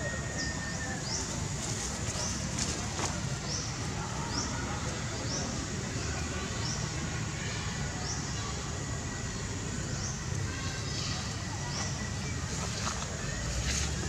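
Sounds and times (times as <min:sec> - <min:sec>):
low rumble and hiss: 0:00.0 - 0:14.0.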